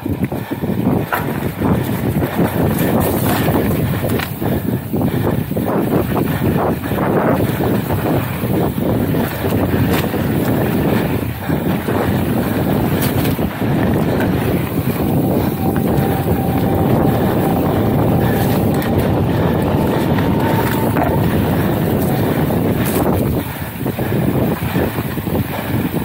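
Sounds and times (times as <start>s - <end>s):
bike tyres rolling on dirt trail: 0.0s - 26.0s
wind buffeting microphone: 0.0s - 26.0s.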